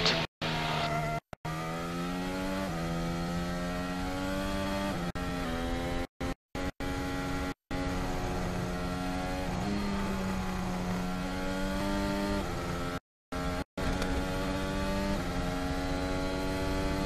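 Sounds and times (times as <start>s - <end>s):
racing car engine at high revs: 0.0s - 17.0s.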